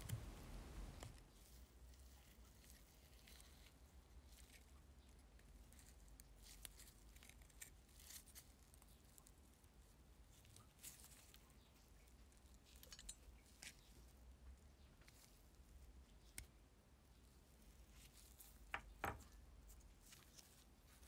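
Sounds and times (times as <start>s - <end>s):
low steady hum: 0.0s - 21.0s
pliers clicking and scraping on metal: 12.7s - 13.9s.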